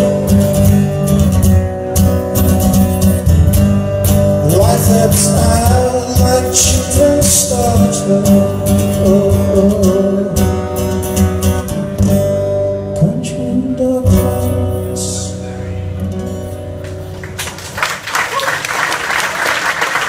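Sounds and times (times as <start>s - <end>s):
strummed acoustic guitar: 0.0s - 17.7s
man singing: 4.4s - 10.9s, 12.8s - 16.1s
audience applause: 17.2s - 20.0s.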